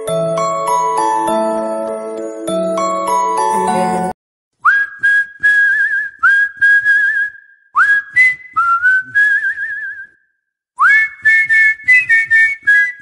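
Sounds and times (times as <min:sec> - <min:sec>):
whistled melody: 0:00.0 - 0:13.0
steady beat: 0:03.5 - 0:04.1.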